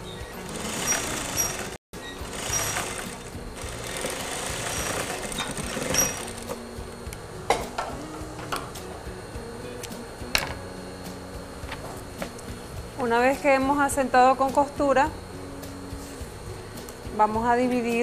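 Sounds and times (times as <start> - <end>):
sewing machine running: 0.4 - 6.5.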